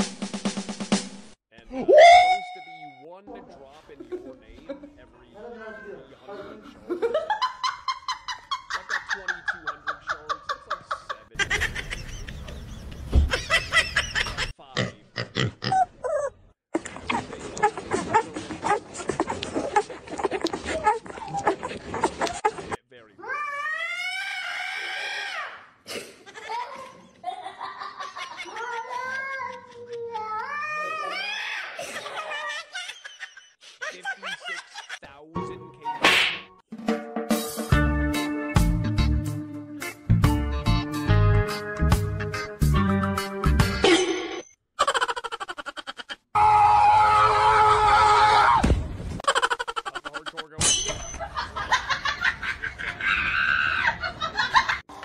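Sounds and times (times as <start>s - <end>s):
tone sliding down in pitch: 1.9s - 3.0s.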